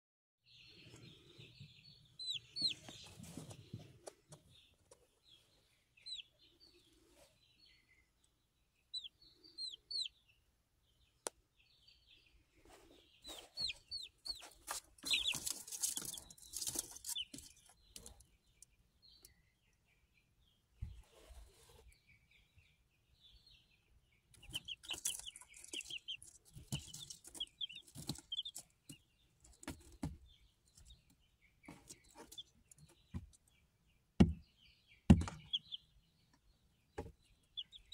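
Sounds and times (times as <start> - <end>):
chicks peeping: 0.5 - 37.9
rustling: 12.6 - 18.1, 24.4 - 30.0.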